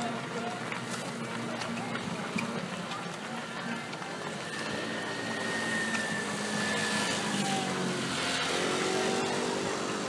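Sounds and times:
runners' footsteps on asphalt: 0:00.0 - 0:08.5.

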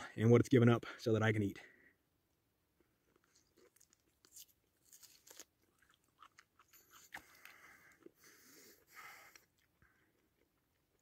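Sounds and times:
man chewing with clicks and smacks: 0:02.8 - 0:11.0.

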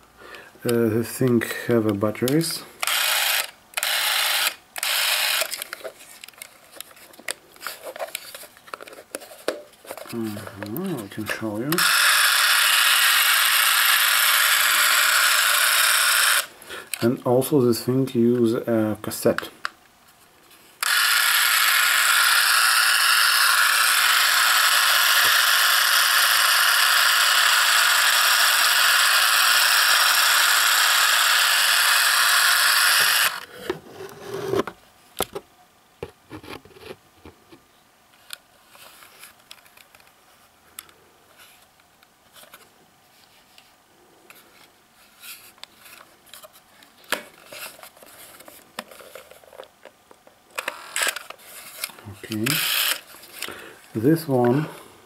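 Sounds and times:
camera motor whirring: 0:02.8 - 0:05.8, 0:11.7 - 0:16.5, 0:20.8 - 0:33.5, 0:50.6 - 0:51.3, 0:52.4 - 0:53.5.

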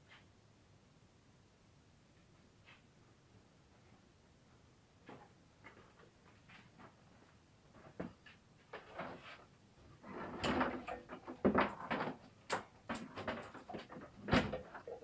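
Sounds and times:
knocks and clatter of handling: 0:07.8 - 0:15.0.

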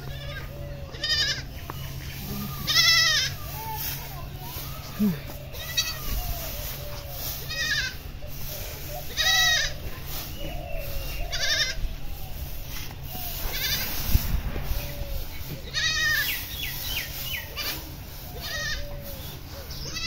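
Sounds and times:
animal wavering calls: 0:04.6 - 0:09.8, 0:17.2 - 0:20.0.

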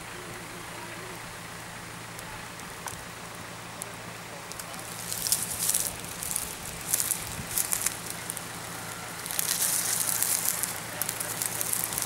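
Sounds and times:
steady low hum: 0:00.0 - 0:12.0
footsteps crunching through dry leaves: 0:04.6 - 0:12.0.

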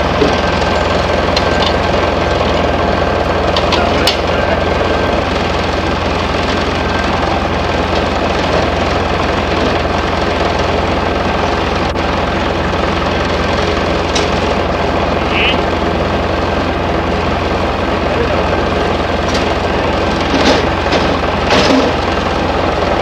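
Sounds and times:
farm machinery engine droning: 0:00.0 - 0:23.0.

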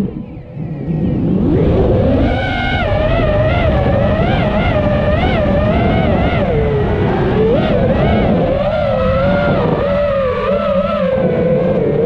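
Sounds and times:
drone motors whining: 0:00.0 - 0:12.0
wind rumble on microphone: 0:00.0 - 0:12.0.

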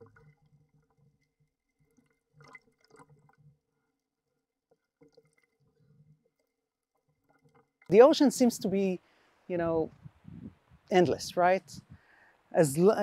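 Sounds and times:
water sloshing and splashing: 0:00.0 - 0:08.0.

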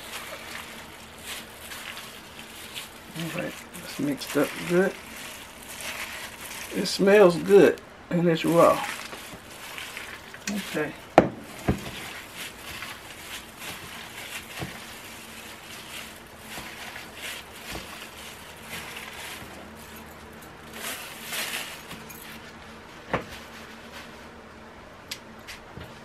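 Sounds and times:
wet squishing of raw chicken: 0:00.0 - 0:06.9, 0:08.4 - 0:10.9, 0:11.5 - 0:19.8.

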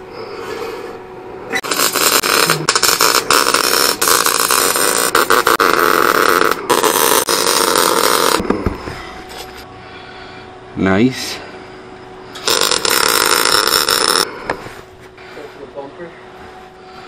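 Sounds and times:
welder arc crackling: 0:01.6 - 0:08.4, 0:12.4 - 0:14.3.

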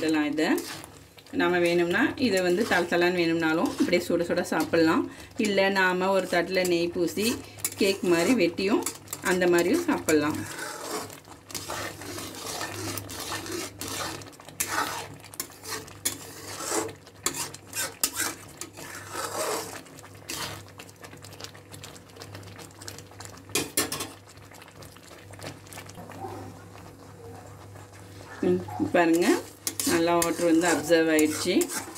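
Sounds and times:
spatula scraping metal pan: 0:00.0 - 0:00.9, 0:01.6 - 0:05.6, 0:06.2 - 0:20.6, 0:28.8 - 0:31.9
thick mixture bubbling: 0:00.0 - 0:31.9.

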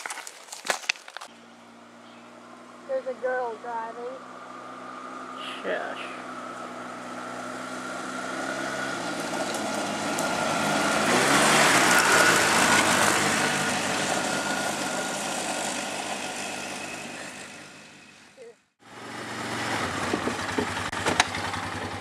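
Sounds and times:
tyres on gravel: 0:00.0 - 0:01.5, 0:05.6 - 0:17.6
atv engine passing by: 0:01.3 - 0:22.0.

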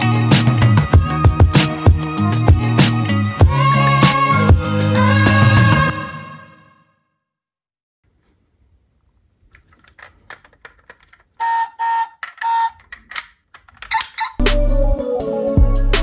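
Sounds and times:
toy truck clicks and rattles: 0:09.5 - 0:14.4.

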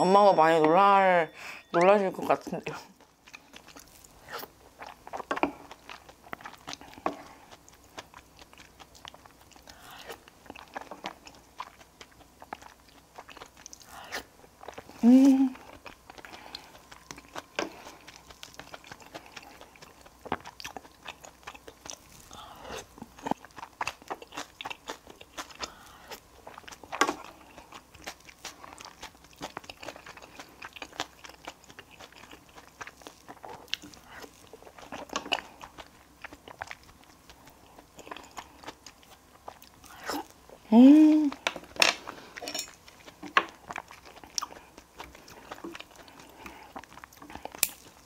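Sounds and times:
chewing and crunching: 0:01.8 - 0:48.0.

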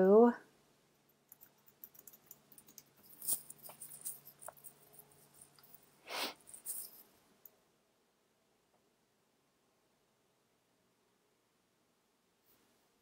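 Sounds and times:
faint low hum: 0:00.0 - 0:13.0
short hiss: 0:06.0 - 0:06.4.

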